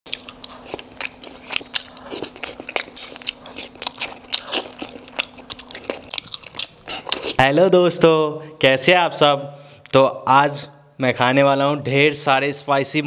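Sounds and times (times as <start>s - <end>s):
man chewing food: 0.1s - 7.5s
faint steady hum: 0.1s - 13.0s.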